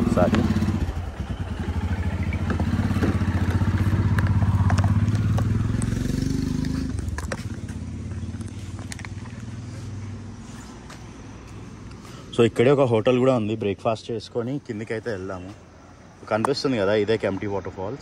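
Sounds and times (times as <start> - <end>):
motorcycle engine running: 0.0 - 10.4.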